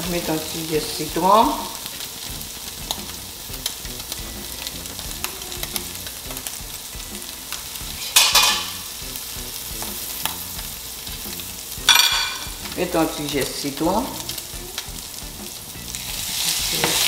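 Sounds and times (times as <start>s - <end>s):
fish frying in oil: 0.0s - 17.0s.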